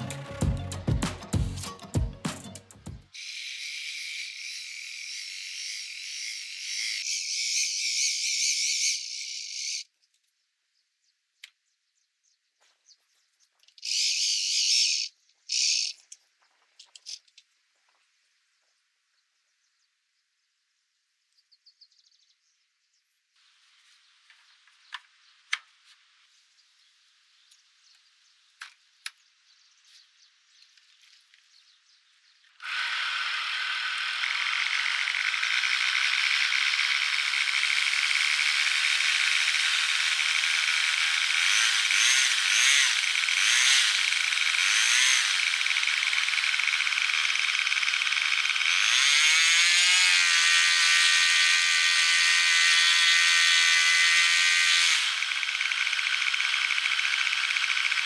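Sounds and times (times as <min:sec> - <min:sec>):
electric starter whirring: 0:32.6 - 0:58.0
model engine idling: 0:34.2 - 0:41.4, 0:45.4 - 0:48.7.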